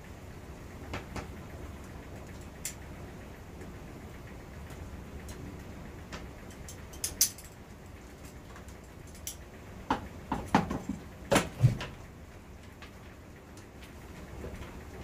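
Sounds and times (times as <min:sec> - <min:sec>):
plastic knocks: 0:09.9 - 0:11.8.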